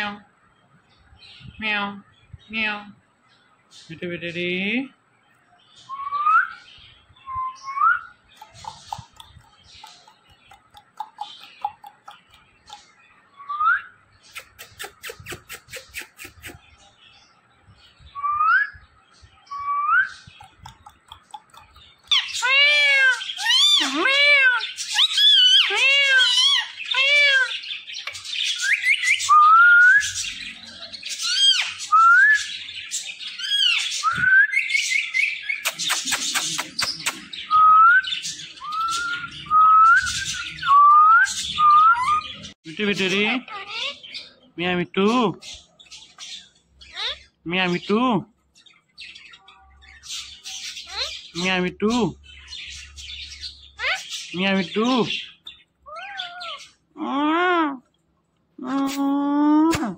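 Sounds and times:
parakeet whistles and squawks: 0:19.5 - 0:42.6, 0:43.4 - 0:44.4, 0:45.5 - 0:47.4, 0:49.1 - 0:51.4, 0:52.4 - 0:54.4, 0:55.2 - 0:56.8.

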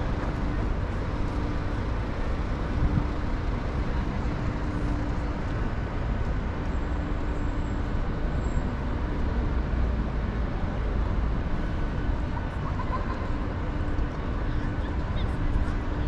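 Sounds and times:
city traffic hum: 0:00.0 - 0:16.0.

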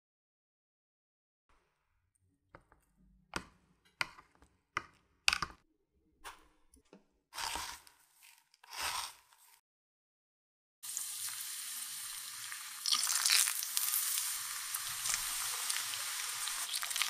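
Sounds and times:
rustling scrapes in breadcrumbs: 0:07.4 - 0:09.6.

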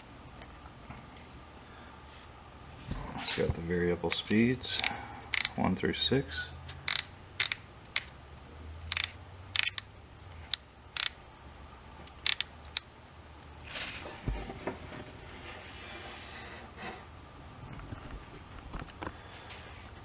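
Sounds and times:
sander thumbwheel clicking: 0:04.1 - 0:05.6, 0:06.8 - 0:08.1, 0:08.9 - 0:09.9, 0:10.5 - 0:11.2, 0:12.1 - 0:12.9.

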